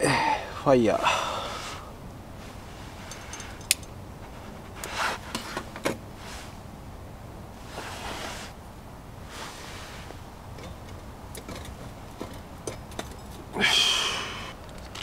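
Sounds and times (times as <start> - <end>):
low background hiss: 0.0 - 15.0
rubbing and handling noises: 2.4 - 6.6, 7.6 - 8.6, 9.2 - 13.5.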